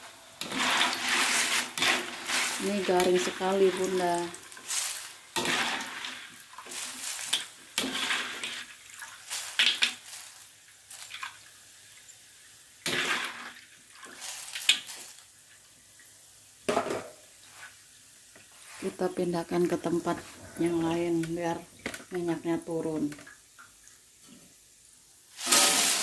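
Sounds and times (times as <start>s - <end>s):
strainer scraping wok: 0.4s - 11.1s, 25.4s - 26.0s
crackers rattling: 0.4s - 11.3s, 14.0s - 15.2s.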